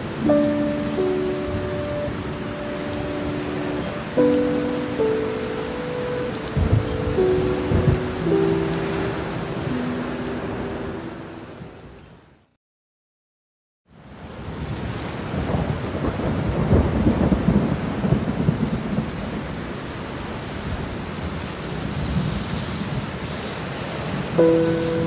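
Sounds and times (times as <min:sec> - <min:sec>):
rain falling: 0:00.0 - 0:12.3, 0:13.9 - 0:25.0
low roll of thunder: 0:06.6 - 0:08.1, 0:14.6 - 0:19.5.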